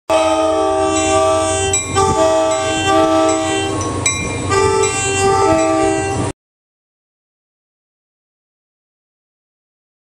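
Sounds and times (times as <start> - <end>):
locomotive air horn blasts: 0.1 - 3.9, 4.5 - 6.3
train rumbling: 0.1 - 6.4.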